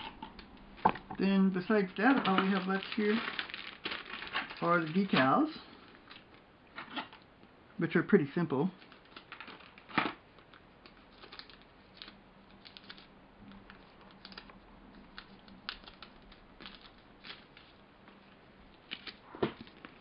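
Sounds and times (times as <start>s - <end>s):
plastic parts clicking and crinkling: 2.0s - 7.3s, 8.8s - 20.0s.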